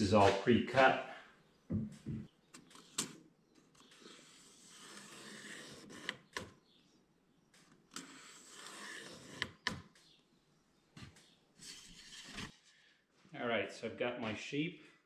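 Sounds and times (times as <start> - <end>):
pencil scratching on plywood: 3.8 - 6.4, 7.9 - 9.8, 11.6 - 12.6.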